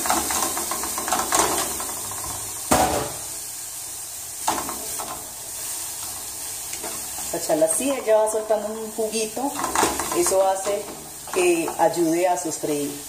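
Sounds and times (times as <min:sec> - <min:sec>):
food sizzling in a frying pan: 0:00.0 - 0:13.0
wooden spoon scraping a pan: 0:04.4 - 0:12.4.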